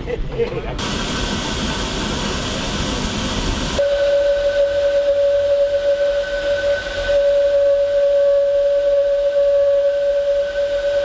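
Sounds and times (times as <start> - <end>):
steam locomotive whistle: 3.8 - 11.0.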